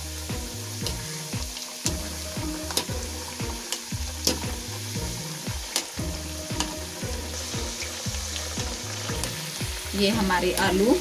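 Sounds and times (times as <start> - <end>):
potatoes sizzling in hot oil: 0.0 - 11.0.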